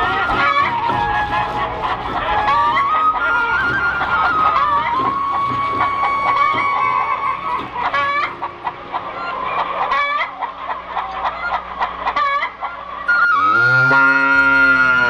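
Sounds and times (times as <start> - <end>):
steady high tone: 0.0 - 11.6
chickens clucking: 0.0 - 15.0.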